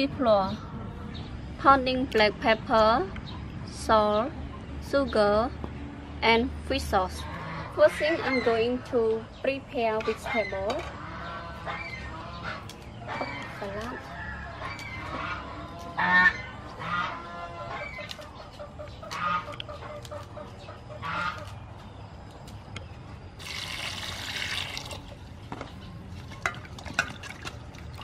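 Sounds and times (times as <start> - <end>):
poultry honking and clucking: 6.9 - 22.2.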